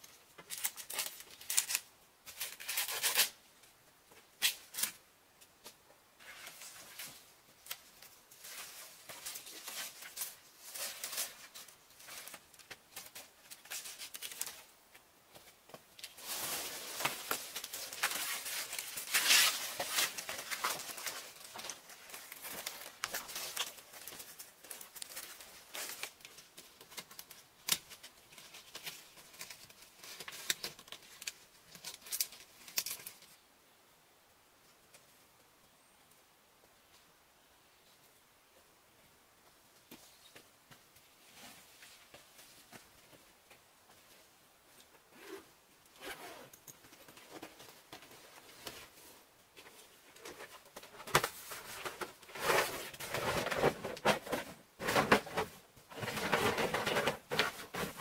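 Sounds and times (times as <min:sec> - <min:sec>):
bamboo panels rustling: 0:00.0 - 0:33.5, 0:46.5 - 0:58.0.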